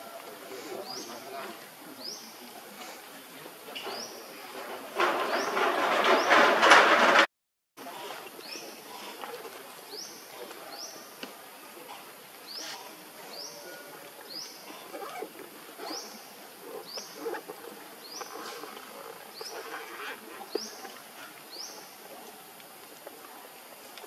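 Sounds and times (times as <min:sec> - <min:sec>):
faint rustling: 0:02.5 - 0:07.3.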